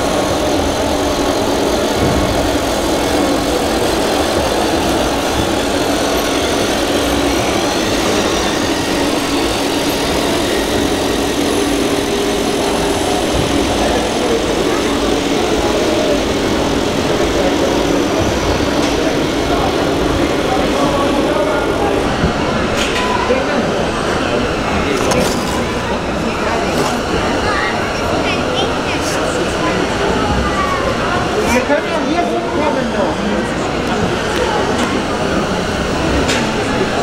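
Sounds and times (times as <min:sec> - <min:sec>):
rc truck motor hum: 0:00.0 - 0:20.2
voices chattering: 0:00.0 - 0:37.0.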